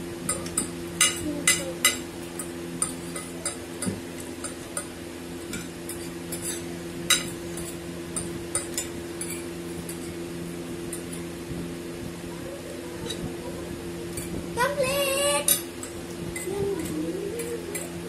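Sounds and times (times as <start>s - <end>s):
forks clinking on plates: 0.3s - 10.2s, 15.4s - 18.0s.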